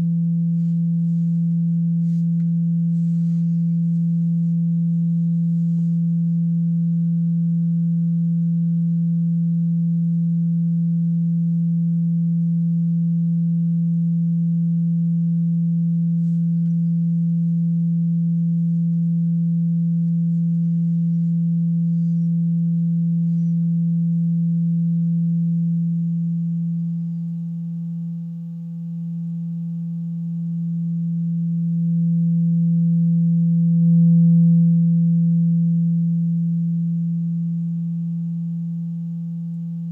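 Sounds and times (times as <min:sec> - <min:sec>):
steady low pure tone: 0:00.0 - 0:39.9.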